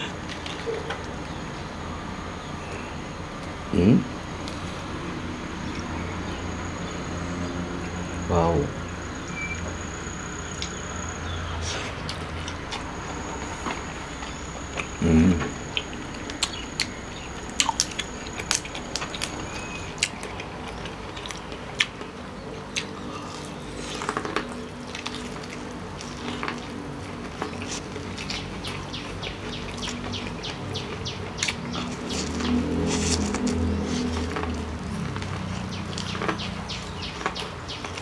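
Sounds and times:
chewing: 11.6s - 38.0s.

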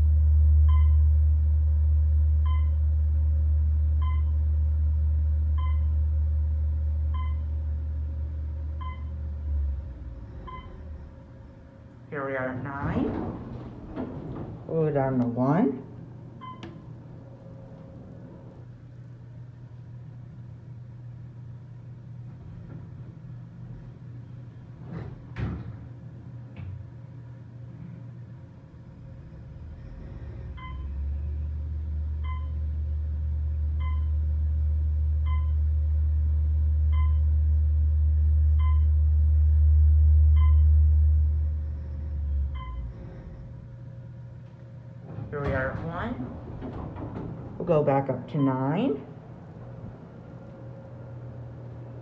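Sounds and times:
elevator motor humming: 0.0s - 52.0s
elevator doors sliding shut: 9.6s - 19.5s, 22.2s - 27.0s, 41.6s - 52.0s.

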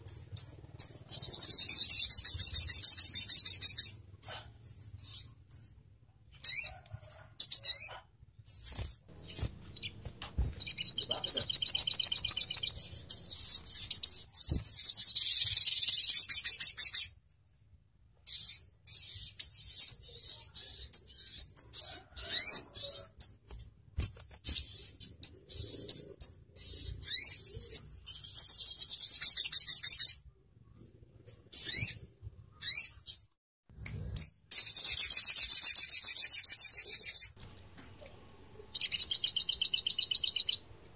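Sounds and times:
bird high-pitched trills: 10.6s - 17.1s, 34.5s - 40.7s
bird sharp upward chirps: 10.6s - 17.1s, 34.2s - 40.7s.

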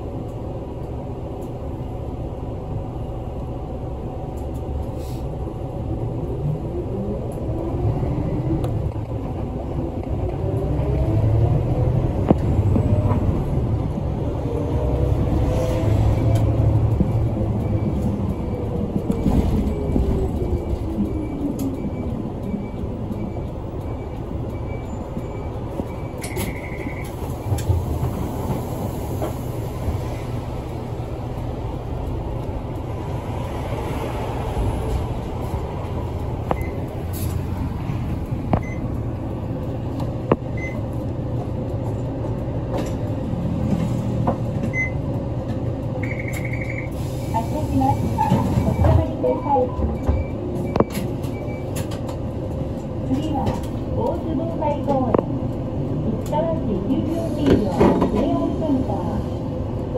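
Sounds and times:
bus engine and road rumble: 0.0s - 59.9s
short high beeps: 46.0s - 47.0s.

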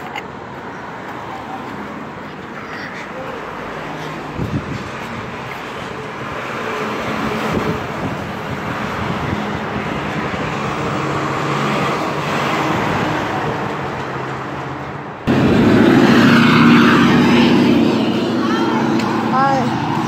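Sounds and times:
traffic passing: 0.0s - 20.0s
truck passing: 0.0s - 20.0s
loud engine: 5.8s - 20.0s.

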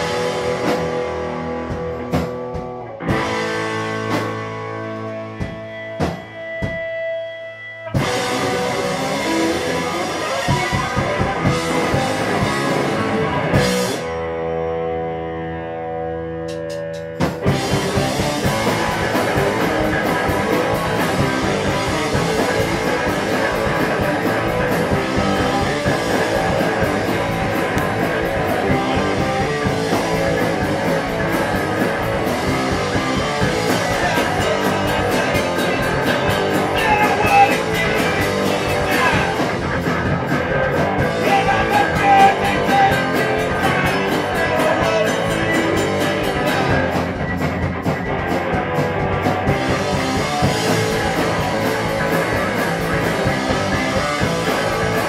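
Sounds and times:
drum kit: 0.0s - 14.7s, 16.3s - 55.0s
electric bass: 0.0s - 55.0s
electric guitar: 0.0s - 55.0s.

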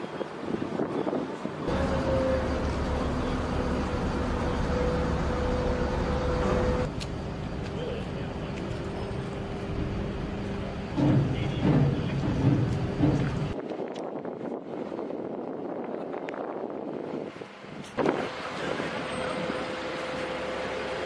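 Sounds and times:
diesel engine running: 1.6s - 13.6s, 18.0s - 21.0s
high whine: 1.7s - 13.6s.

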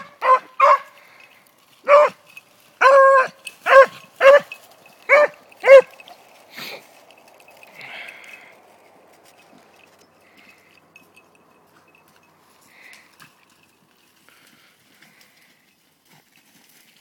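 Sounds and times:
dog barking and baying: 0.0s - 1.0s, 1.8s - 2.2s, 2.8s - 6.0s.

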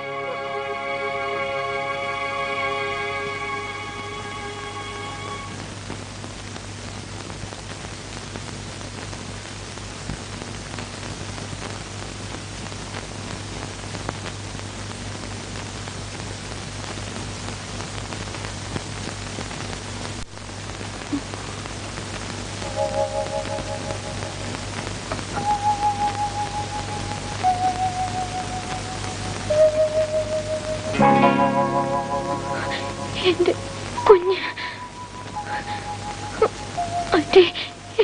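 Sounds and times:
rain-like hiss: 0.0s - 38.0s
low hum: 22.6s - 38.0s.

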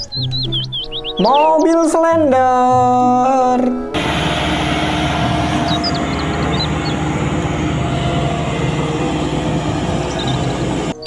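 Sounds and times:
diesel engine droning: 4.0s - 11.0s.

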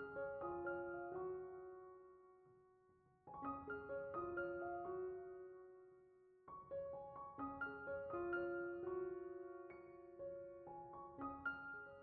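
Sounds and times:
soft piano music: 0.0s - 12.0s.

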